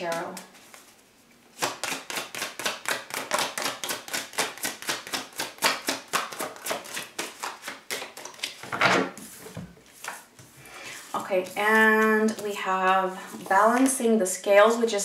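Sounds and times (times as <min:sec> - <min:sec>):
cards shuffling: 0:01.6 - 0:10.3.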